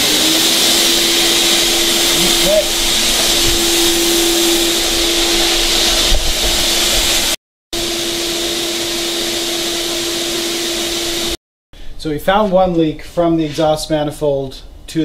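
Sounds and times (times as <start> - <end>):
shop vacuum running: 0.0 - 11.4.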